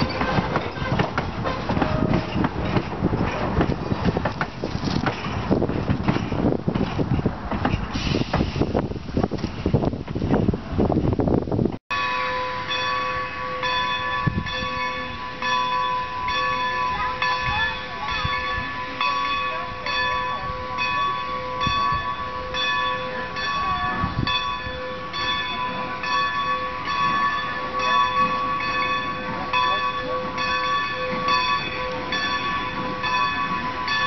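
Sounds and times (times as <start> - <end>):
locomotive bell ringing: 0.0 - 4.1, 11.9 - 34.0
wind buffeting microphone: 0.0 - 11.8, 14.0 - 14.9, 17.0 - 25.3.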